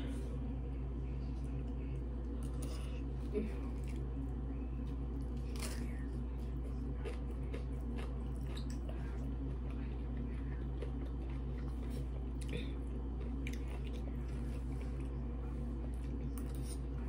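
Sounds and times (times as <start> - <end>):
steady low hum: 0.0 - 17.0
chewing and wet mouth sounds: 1.1 - 17.0.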